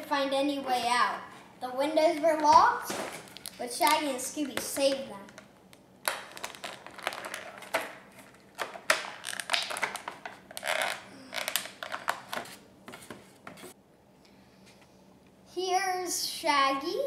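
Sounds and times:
plastic packaging crackling: 2.3 - 12.6.

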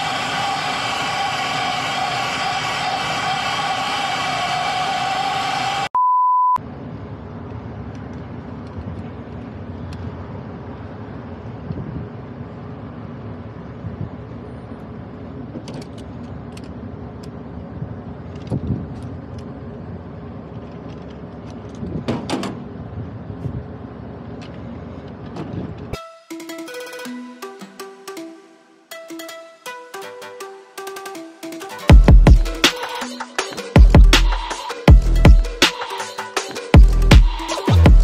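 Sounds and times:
short high beep: 5.9 - 6.6.

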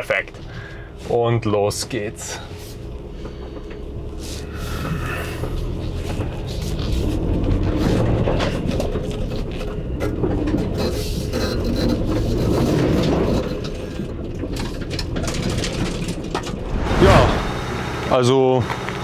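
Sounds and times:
car engine revving loud: 16.6 - 18.1.

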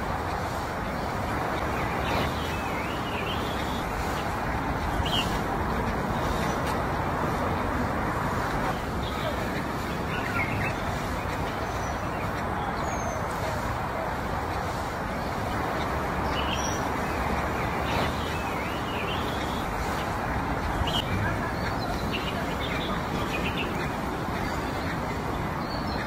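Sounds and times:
murmur of voices: 0.0 - 26.0
bird chirps: 1.6 - 4.3, 15.8 - 25.0.

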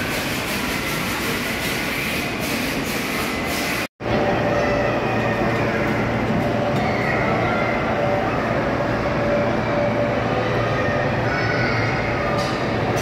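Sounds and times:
amusement hall crowd and machines: 0.0 - 13.0.

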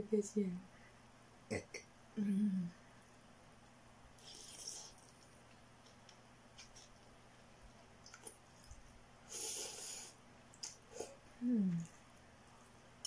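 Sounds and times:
faint mouth clicks: 4.2 - 5.2, 10.6 - 11.9
noodles being slurped: 4.2 - 5.2.

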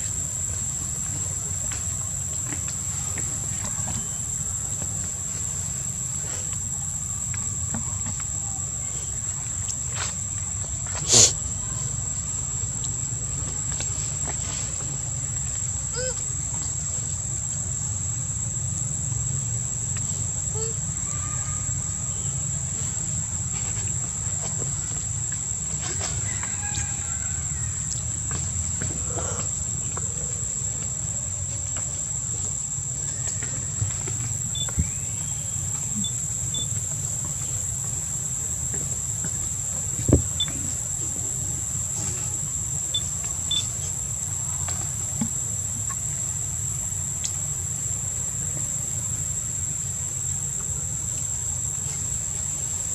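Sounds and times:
insects droning: 0.0 - 52.9
faint short chirps: 42.9 - 43.7.

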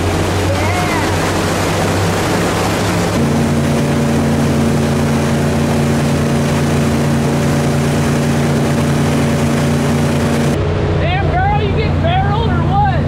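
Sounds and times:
boat engine droning: 0.0 - 13.0
water rushing: 0.0 - 13.0.

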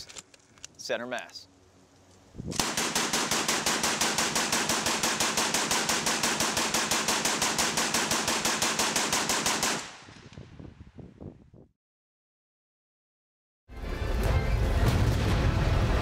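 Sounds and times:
automatic rifle firing: 2.6 - 10.1.

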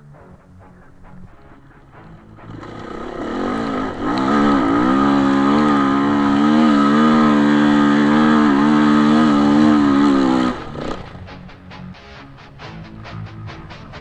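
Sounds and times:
motorcycle engine revving: 1.9 - 11.6.

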